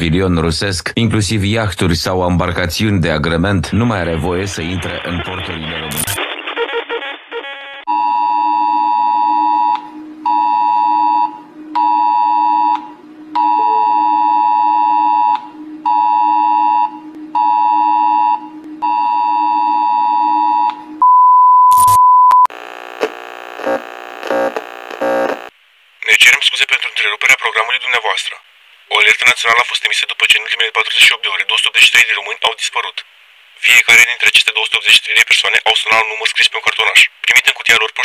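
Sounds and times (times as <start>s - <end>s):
harsh buzzing alert tone: 5.9s - 20.6s
low steady drone: 9.2s - 18.9s
two-tone alert beeps: 13.4s - 22.5s.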